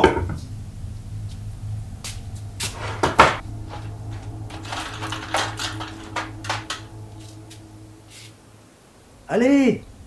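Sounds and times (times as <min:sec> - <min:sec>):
sweets rattling in a metal tin: 0:04.1 - 0:07.2.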